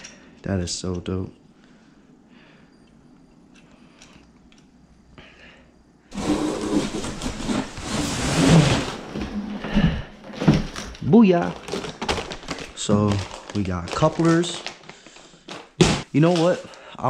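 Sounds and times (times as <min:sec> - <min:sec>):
rummaging in packing peanuts: 0:06.1 - 0:17.0.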